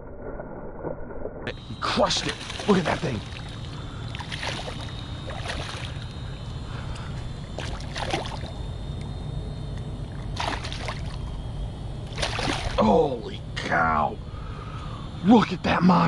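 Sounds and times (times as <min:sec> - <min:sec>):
steady low rumble: 0:00.0 - 0:16.0
fish thrashing and splashing in water: 0:02.2 - 0:06.2, 0:07.6 - 0:08.6, 0:10.1 - 0:11.3, 0:12.1 - 0:12.8.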